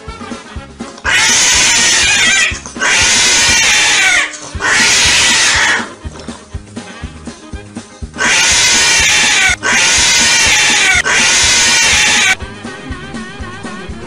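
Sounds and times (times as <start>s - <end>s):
background music with steady beat: 0.0s - 14.0s
cat yowling: 1.1s - 5.9s, 8.2s - 12.4s.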